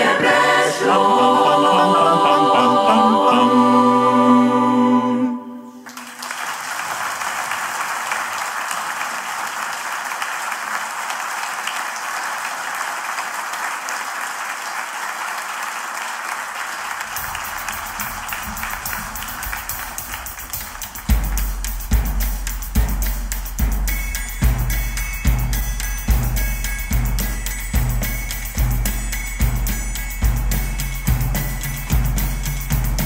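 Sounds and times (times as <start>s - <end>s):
choir holding a chord: 0.0s - 5.9s
audience applauding: 5.8s - 22.1s.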